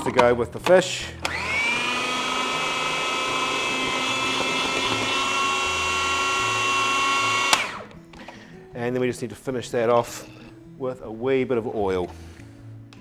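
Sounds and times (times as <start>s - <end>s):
food processor switch click: 1.2s - 1.7s
food processor motor whining: 1.2s - 8.0s.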